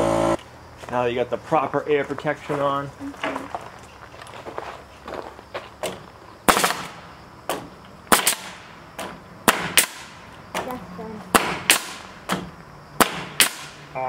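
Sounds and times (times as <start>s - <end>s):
nail gun firing into wood: 5.8s - 10.2s, 11.3s - 13.8s.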